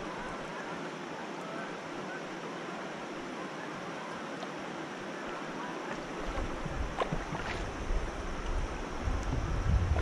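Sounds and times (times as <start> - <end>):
paddle splashes: 4.3 - 8.0
wind rumble on microphone: 6.2 - 10.0.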